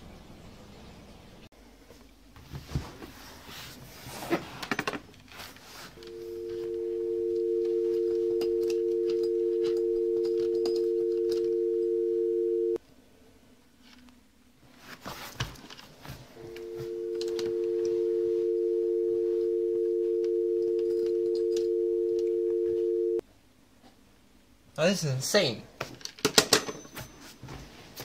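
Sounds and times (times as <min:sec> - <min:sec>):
telephone dial tone: 0:06.0 - 0:12.8, 0:16.5 - 0:23.2.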